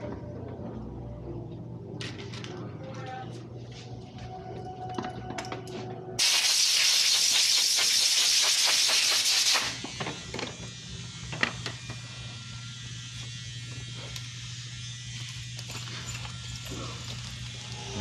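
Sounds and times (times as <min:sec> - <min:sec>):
air blow gun hissing: 0:06.2 - 0:09.8.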